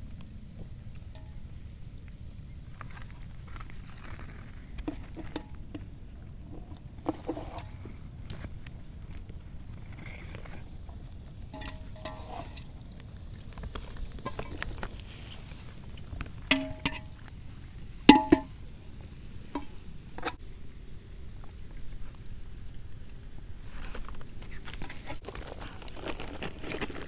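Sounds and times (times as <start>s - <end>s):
steel bowls clinking: 11.5s - 12.8s, 14.2s - 15.3s, 16.5s - 17.2s, 18.1s - 18.5s.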